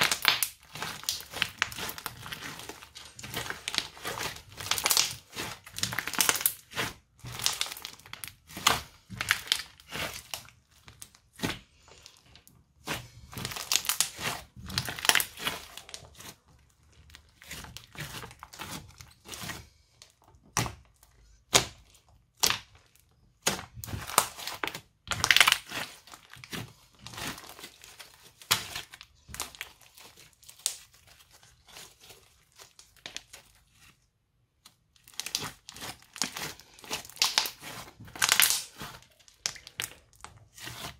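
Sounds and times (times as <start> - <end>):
crunchy slime being squeezed: 0.0 - 33.9, 34.8 - 40.9.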